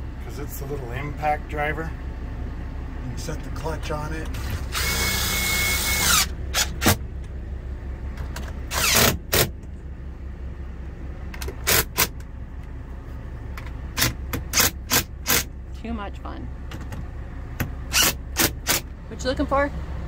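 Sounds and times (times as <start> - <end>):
steady low hum: 0.0 - 20.0
impact driver bursts: 4.4 - 7.0, 8.7 - 9.5, 11.6 - 12.1, 14.0 - 15.5, 17.9 - 18.9.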